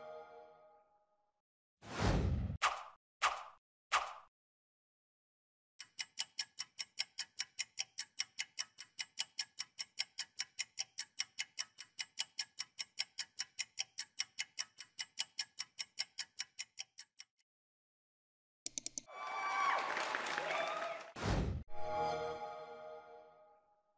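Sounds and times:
clock ticking: 5.8 - 17.4, 18.7 - 19.1
quick clicks: 18.7 - 19.1.

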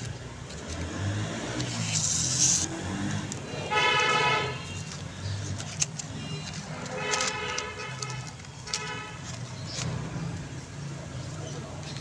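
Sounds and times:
road traffic: 0.0 - 12.0
vehicle horn toot: 3.6 - 4.9.

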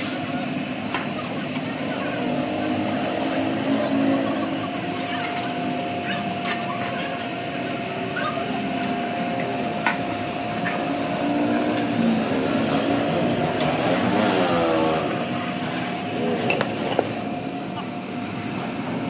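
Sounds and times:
workshop machine humming: 0.0 - 19.0.

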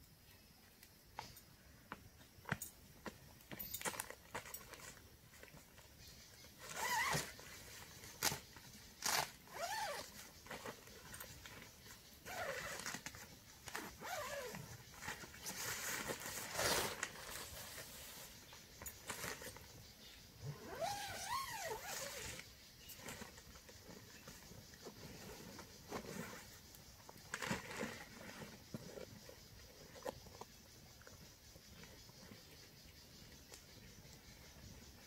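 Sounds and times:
tent zipper being pulled open: 6.6 - 7.6, 9.0 - 10.8, 12.2 - 18.3, 20.5 - 22.4.

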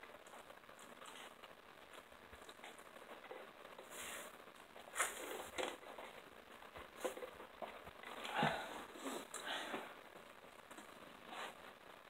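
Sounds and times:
chewing and crunching food: 0.0 - 3.8.

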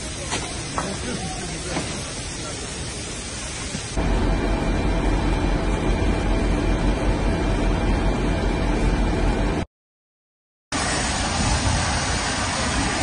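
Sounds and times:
steady hiss: 0.0 - 5.4, 10.8 - 13.0
truck engines rumbling: 4.0 - 9.6
faint hum: 4.0 - 9.7.

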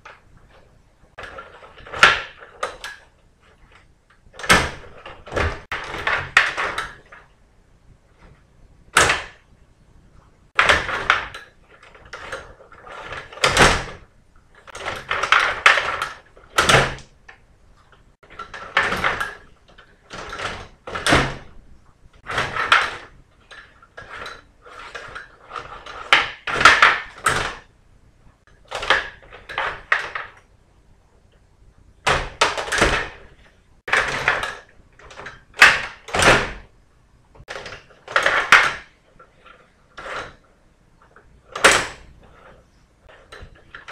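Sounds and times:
plastic players and puck clattering: 0.0 - 7.4, 22.2 - 27.7, 28.4 - 30.6, 31.3 - 36.6, 37.4 - 43.9
table hockey rods clattering: 0.0 - 7.4, 22.1 - 27.7, 28.4 - 30.6, 37.4 - 43.9.

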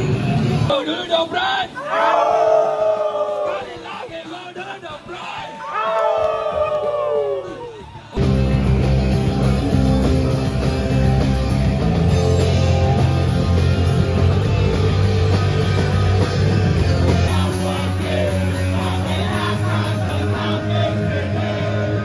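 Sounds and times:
punk rock band playing live: 0.0 - 1.2, 7.7 - 22.0.

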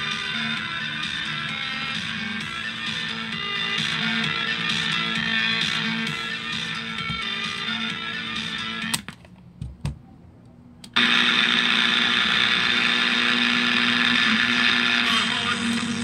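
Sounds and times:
noisy radio sound: 11.0 - 16.0.

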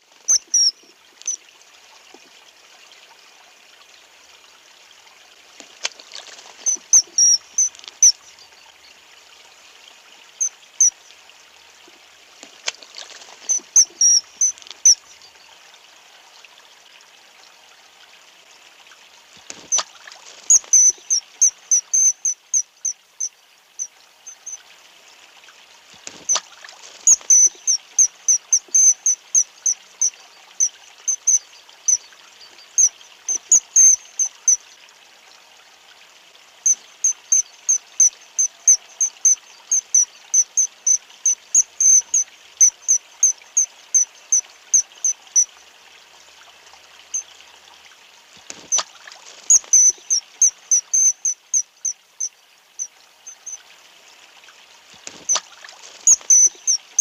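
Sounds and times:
running water hiss: 0.0 - 57.0
shrill bird calls: 0.3 - 1.4, 6.6 - 8.2, 13.4 - 15.0, 20.5 - 23.3, 27.1 - 32.0, 49.5 - 52.0, 56.1 - 56.8.

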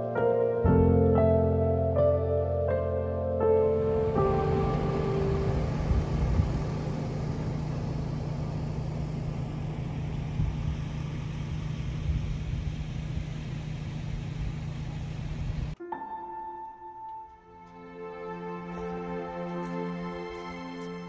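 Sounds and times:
truck engine idling: 3.6 - 15.8.

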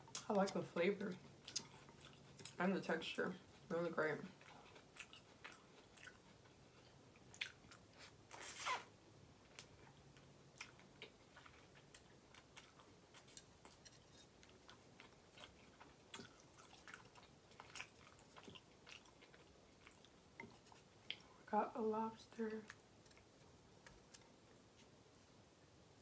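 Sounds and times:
person chewing noodles: 1.2 - 2.6, 4.3 - 8.4, 9.5 - 21.4.

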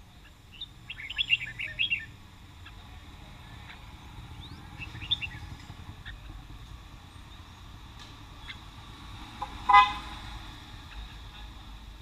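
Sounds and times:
low street rumble: 0.0 - 12.0
bird chirps: 0.2 - 2.9, 3.6 - 6.4
vehicle horn toot: 9.4 - 10.2.

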